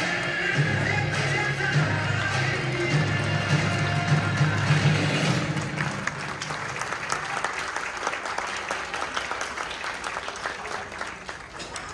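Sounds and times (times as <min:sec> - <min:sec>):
audience applauding: 0:02.5 - 0:11.9.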